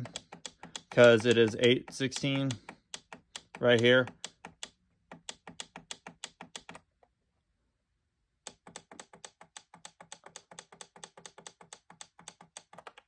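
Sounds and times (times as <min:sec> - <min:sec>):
alarm clock button clicks: 0:00.0 - 0:06.8.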